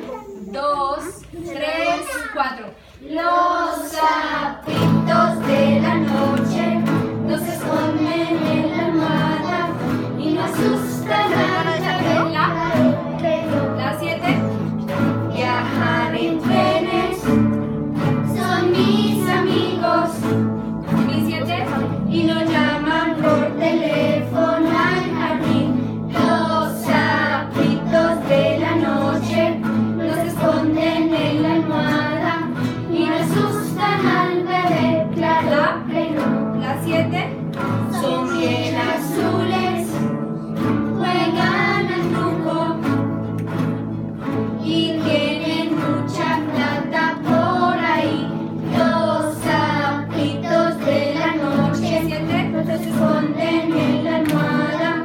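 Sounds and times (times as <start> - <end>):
children singing: 3.0 - 55.0
acoustic guitars strumming: 3.1 - 55.0.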